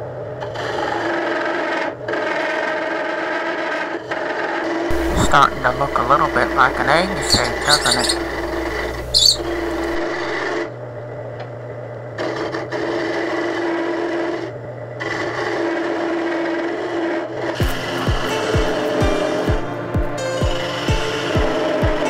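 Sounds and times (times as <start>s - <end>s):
chisel rasping into wood: 4.9s - 10.4s
lathe motor hum: 4.9s - 10.6s.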